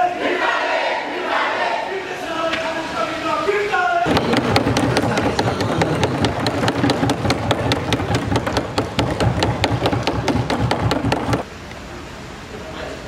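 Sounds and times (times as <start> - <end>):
loud hall din: 4.0 - 11.5
hands banging on wooden desks: 4.1 - 11.5.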